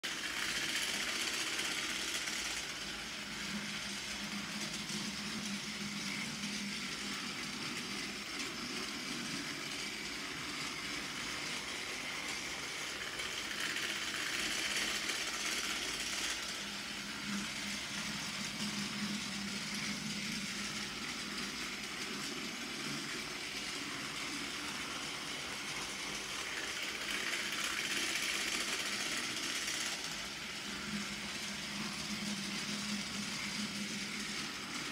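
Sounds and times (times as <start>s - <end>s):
toy train motor whirring: 0.0s - 34.9s
toy train wheels rattling on track: 0.0s - 34.9s.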